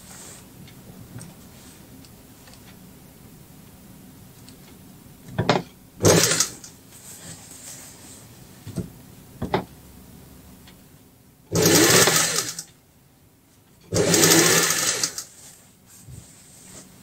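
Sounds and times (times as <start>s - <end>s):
sewing machine stitching: 6.0s - 6.7s, 11.5s - 12.7s, 13.9s - 15.3s.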